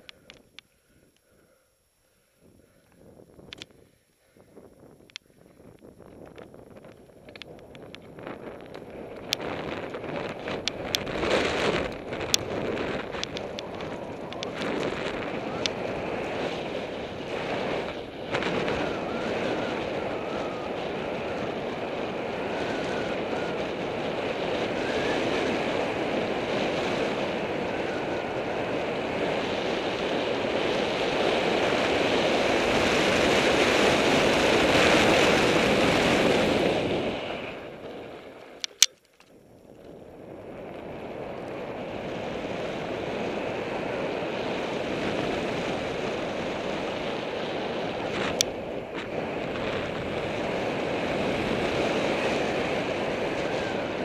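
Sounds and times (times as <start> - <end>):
bike tyre and trail noise: 0.0 - 54.0
wind rushing over microphone: 2.4 - 38.8, 39.8 - 54.0
sharp clicks: 2.8 - 4.2, 38.6 - 39.4.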